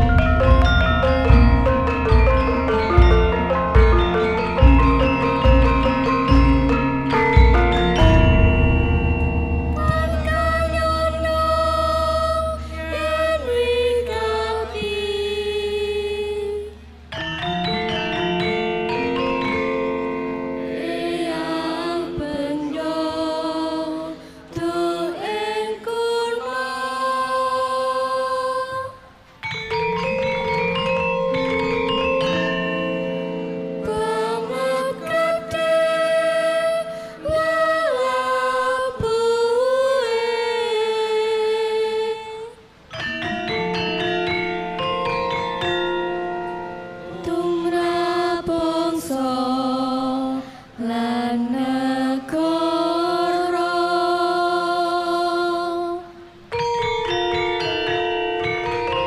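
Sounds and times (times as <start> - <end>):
metallophones and gongs ringing: 0.0 - 14.8, 29.4 - 36.8
singers holding sliding notes: 0.0 - 59.0.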